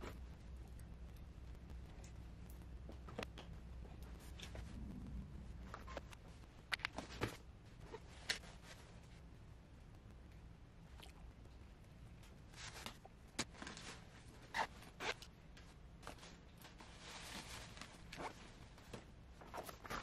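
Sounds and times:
fabric rustling: 12.5 - 20.0.

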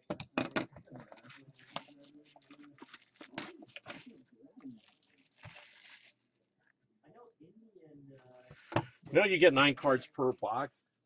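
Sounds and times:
plastic wrap crinkling and tearing: 1.0 - 6.2.

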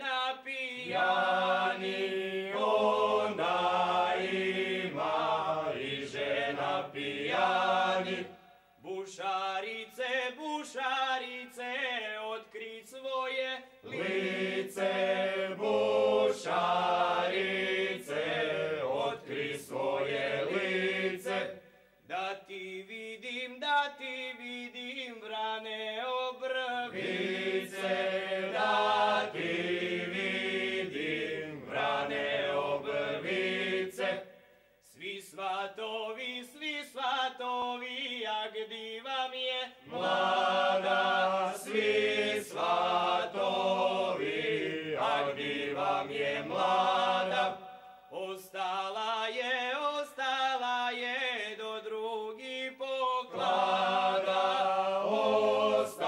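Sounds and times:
men's choir singing in chorus: 0.0 - 23.4, 25.3 - 56.0
singers breathing: 21.6 - 22.1.

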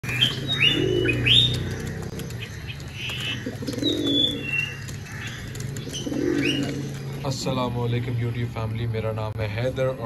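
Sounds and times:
birds chirping: 0.0 - 10.0
pigeon cooing: 0.1 - 7.3.

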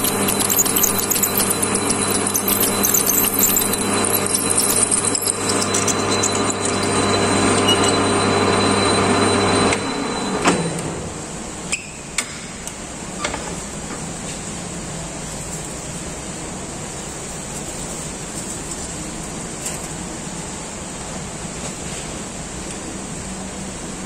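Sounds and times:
drill cutting steel crackle: 0.0 - 9.9
metal lathe humming: 0.0 - 10.6.

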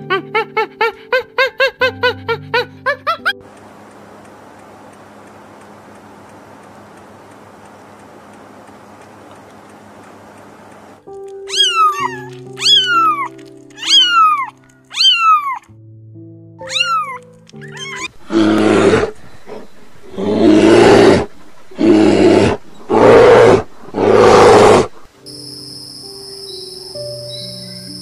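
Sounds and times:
soft background music: 0.0 - 4.4, 9.9 - 23.4, 24.0 - 28.0
kittens mewing: 11.4 - 15.7, 16.6 - 19.1.

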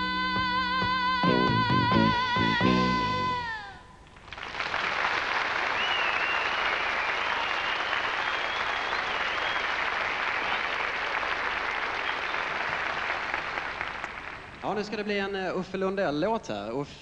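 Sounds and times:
audience applauding: 4.2 - 14.8.

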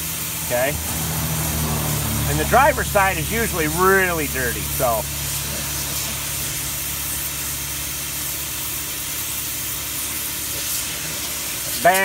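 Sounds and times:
steady low hum: 0.2 - 10.2
air suction tool hissing: 3.2 - 12.0.

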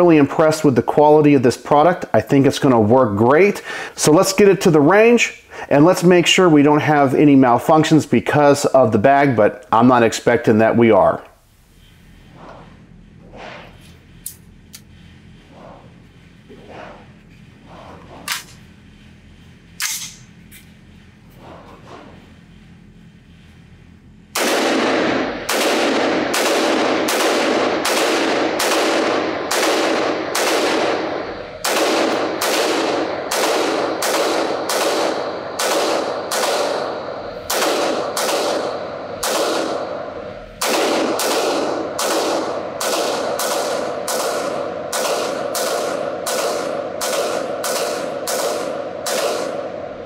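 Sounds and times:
rifle shots ringing indoors: 18.2 - 23.5, 24.1 - 50.0.

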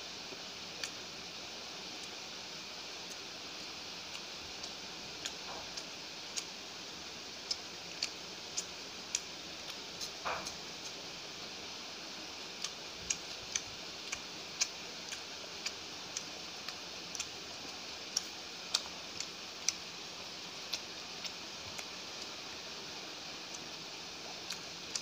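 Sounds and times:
steady hiss: 0.0 - 25.0
person chewing food: 4.1 - 6.7, 7.3 - 11.0, 12.5 - 22.8, 23.4 - 25.0.

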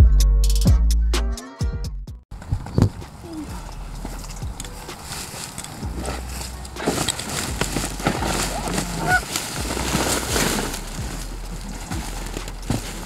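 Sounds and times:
rustling and knocking: 4.0 - 13.0
goose honks: 8.1 - 10.9.

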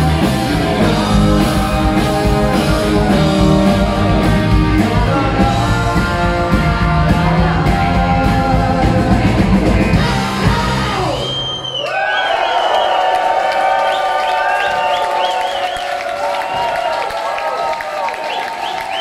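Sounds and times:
electric guitar: 0.0 - 11.4
person singing: 0.0 - 11.4
bass guitar: 0.0 - 11.7
drums: 0.0 - 19.0.

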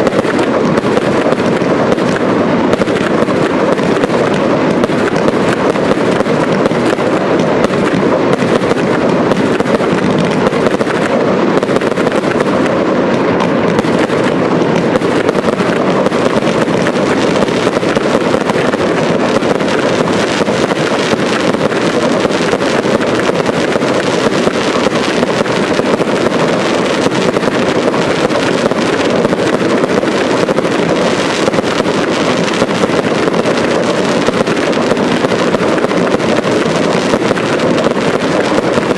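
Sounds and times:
fireworks exploding: 0.0 - 38.9.

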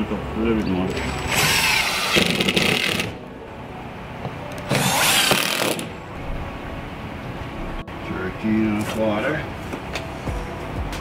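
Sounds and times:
cordless drill driving screws: 0.9 - 3.1, 4.7 - 5.9.

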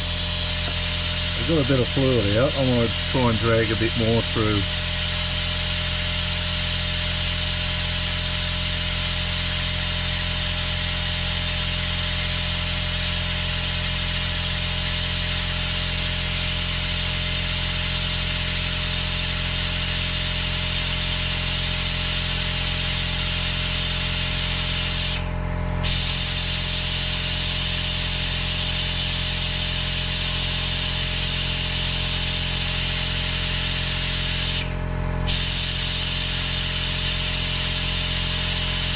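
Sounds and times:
compressed air hissing: 0.0 - 4.8, 25.8 - 29.6, 32.7 - 37.7
steady hum: 0.0 - 5.0.

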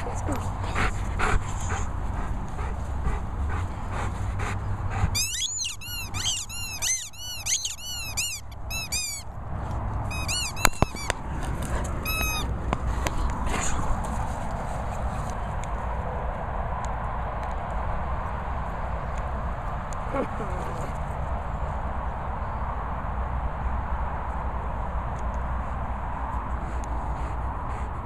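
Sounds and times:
squeaky dog toy squeaking: 5.2 - 9.3, 10.1 - 11.2, 12.0 - 12.5.

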